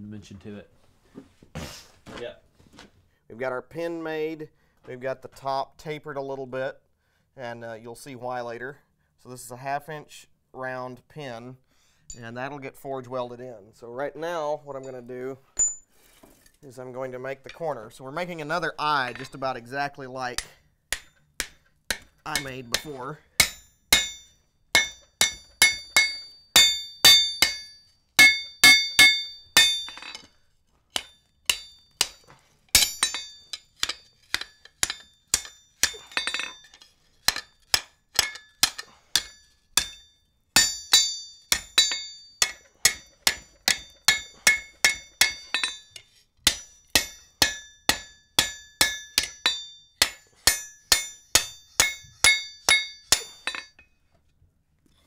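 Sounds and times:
hammer striking iron on anvil: 20.4s - 30.3s, 31.0s - 53.9s.

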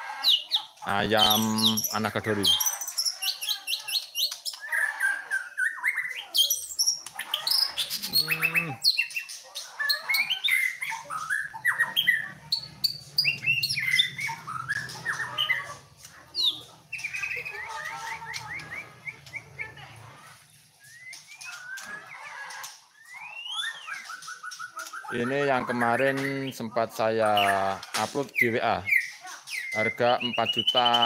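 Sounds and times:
bird singing whistles and chirps: 1.2s - 15.6s, 20.8s - 22.2s, 22.9s - 25.2s, 28.3s - 31.0s.

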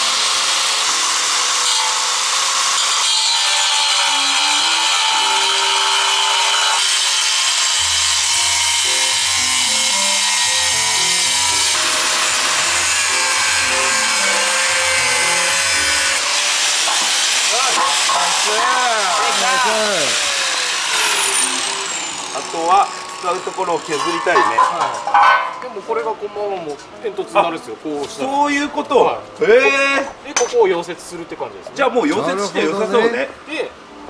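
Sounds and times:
angle grinder cutting steel: 0.0s - 25.5s
background music: 7.8s - 22.7s.

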